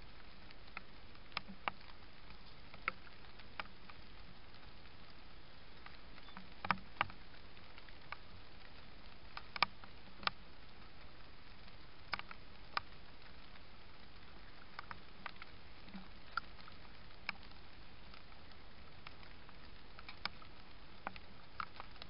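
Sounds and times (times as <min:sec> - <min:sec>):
microphone hiss: 0:00.0 - 0:22.0.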